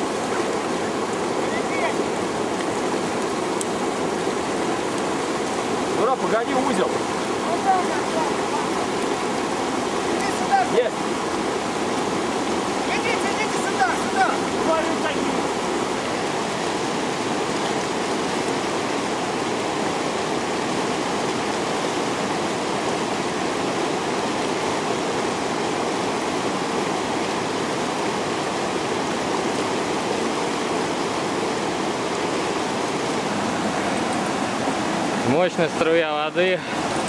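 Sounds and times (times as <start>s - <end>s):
river rushing: 0.0s - 37.0s.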